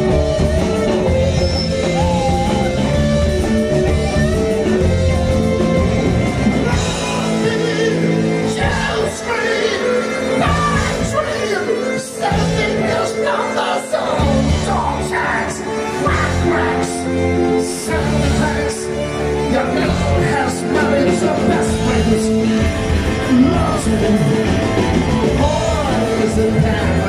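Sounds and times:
bass: 0.0 - 13.3, 14.2 - 27.0
drums: 0.0 - 27.0
man singing: 6.6 - 27.0.

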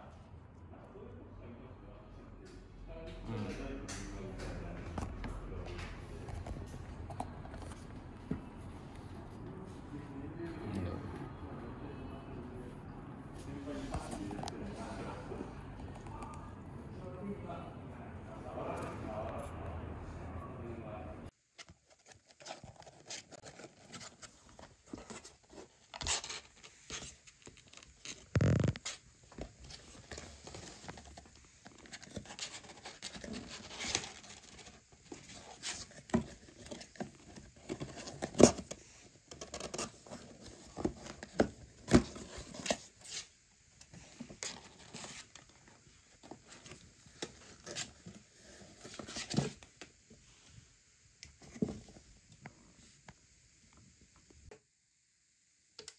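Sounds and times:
kitten claws scratching cardboard: 21.6 - 43.3.

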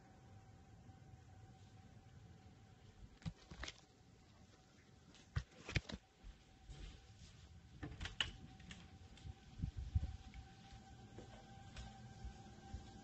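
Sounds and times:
distant tornado siren wail: 8.3 - 13.0.

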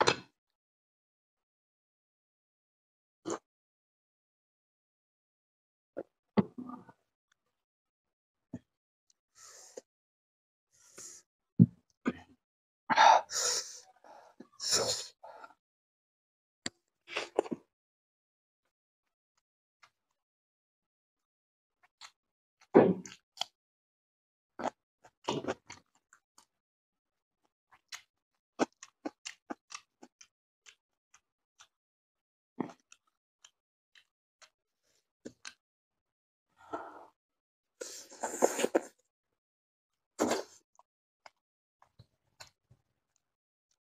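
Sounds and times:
man eating with mouth noises: 27.8 - 30.8, 37.8 - 38.9.

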